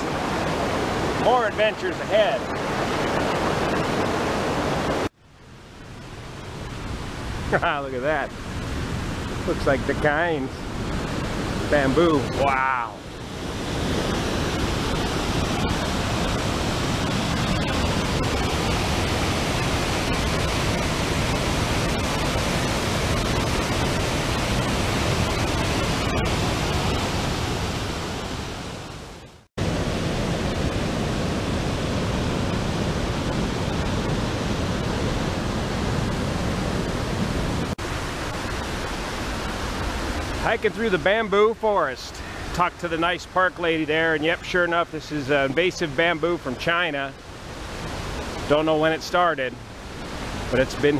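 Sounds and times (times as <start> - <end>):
waterfall rushing: 0.0 - 5.1, 6.2 - 50.9.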